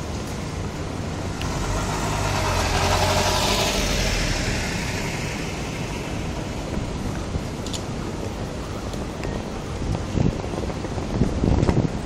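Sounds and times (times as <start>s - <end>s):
van driving past: 1.1s - 7.6s.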